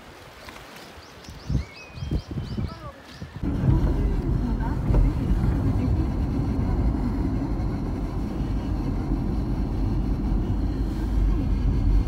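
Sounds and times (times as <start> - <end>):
vehicle driving rumble: 3.4 - 12.0.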